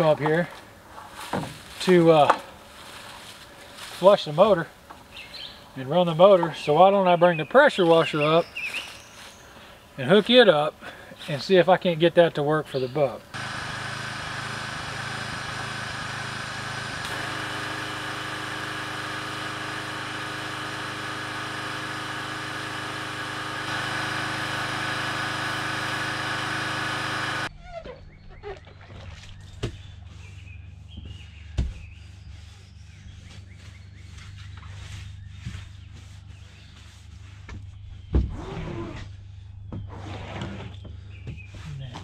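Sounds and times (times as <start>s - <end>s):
birds chirping faintly: 3.4s - 13.4s
pressure washer engine: 13.3s - 27.5s.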